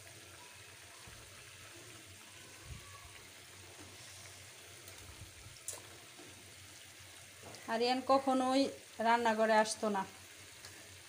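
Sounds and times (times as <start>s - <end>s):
chicken deep-frying in hot oil: 0.0s - 11.0s.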